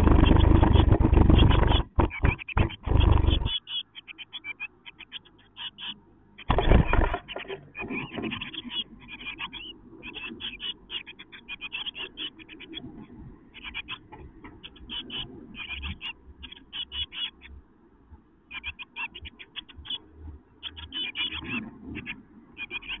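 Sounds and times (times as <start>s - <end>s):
chicks rustling in nest: 0.0s - 3.8s, 6.4s - 17.6s
nestlings begging cheeps: 0.0s - 17.6s, 18.5s - 23.0s.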